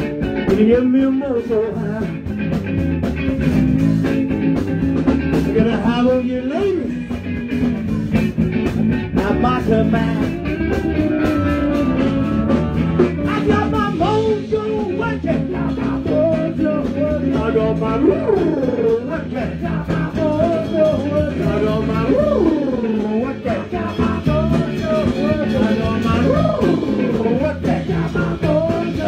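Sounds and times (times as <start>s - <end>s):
bass guitar: 0.0s - 29.0s
drum kit steady beat: 0.0s - 29.0s
electric guitar: 0.0s - 29.0s
harmonica bending notes: 9.4s - 14.3s.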